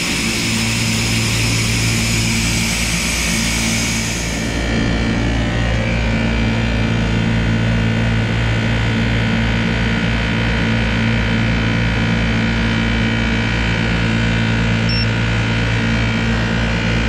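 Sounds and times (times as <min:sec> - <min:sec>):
vacuum pump humming: 0:00.0 - 0:06.9, 0:13.8 - 0:17.0
short high beep: 0:14.9 - 0:15.2.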